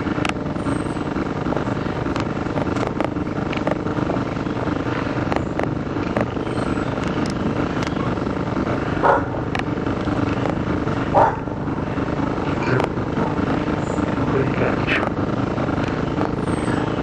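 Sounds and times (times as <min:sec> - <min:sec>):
low outdoor rumble: 0:00.0 - 0:17.0
faint regular clicks: 0:00.2 - 0:00.4, 0:01.2 - 0:04.3, 0:05.2 - 0:08.0, 0:09.5 - 0:10.7, 0:12.7 - 0:14.3, 0:15.0 - 0:16.4
dog barking: 0:09.0 - 0:09.4, 0:11.1 - 0:11.6.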